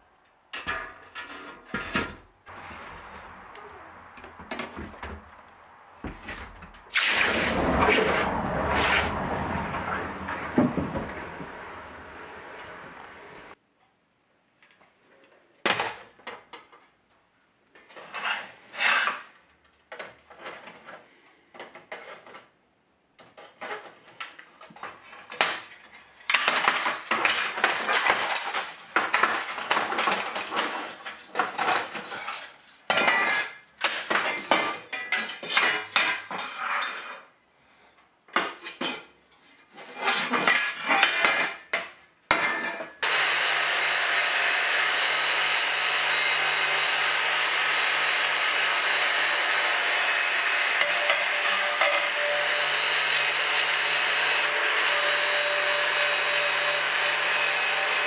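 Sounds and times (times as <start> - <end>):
angle grinder running: 43.0 - 58.0.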